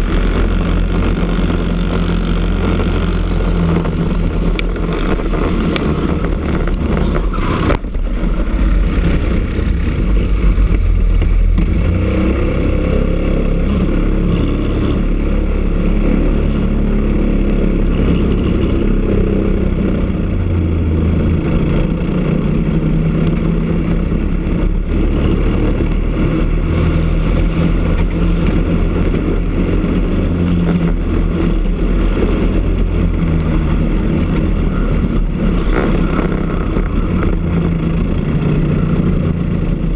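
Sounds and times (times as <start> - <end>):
rushing wind noise: 0.0 - 14.2
kart engine running hard: 0.0 - 39.9.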